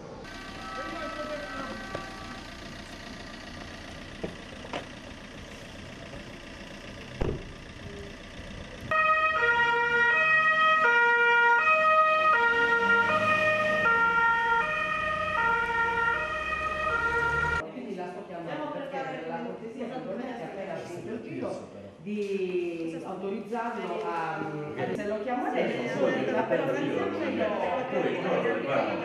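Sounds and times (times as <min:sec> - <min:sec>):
street noise: 0:00.0 - 0:29.0
police siren two-tone: 0:00.4 - 0:02.5, 0:08.9 - 0:17.6
sharp knocks: 0:07.2 - 0:07.5.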